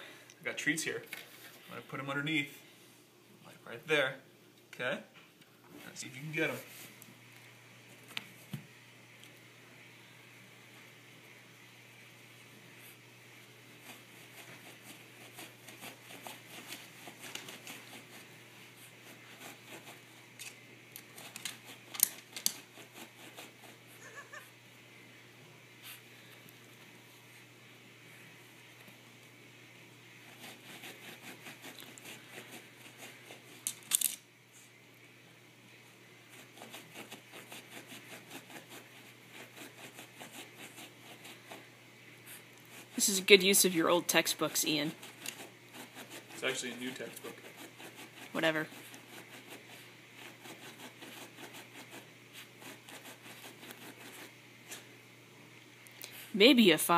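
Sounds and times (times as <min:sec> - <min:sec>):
dog scratching at carpet: 0:13.7 - 0:20.4, 0:21.0 - 0:24.2, 0:30.1 - 0:33.6, 0:36.3 - 0:41.7, 0:42.3 - 0:43.4, 0:44.4 - 0:54.9.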